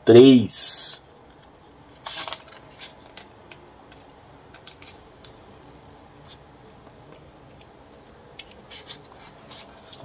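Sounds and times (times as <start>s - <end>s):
room hiss: 0.0s - 10.0s
thin paper pages rustling: 1.9s - 3.3s, 8.4s - 10.0s.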